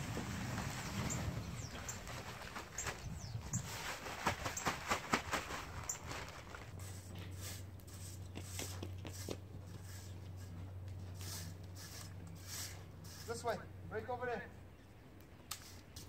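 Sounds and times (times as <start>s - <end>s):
rake scraping over crushed stone: 0.0s - 4.4s, 5.7s - 13.6s.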